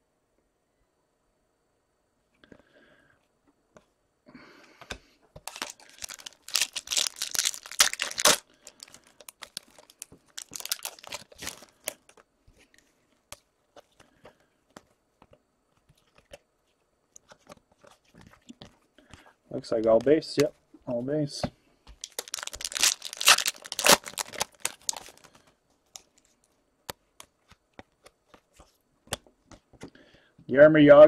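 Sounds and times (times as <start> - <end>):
wrapper tearing and crinkling: 5.4 - 12.2, 22.0 - 25.4.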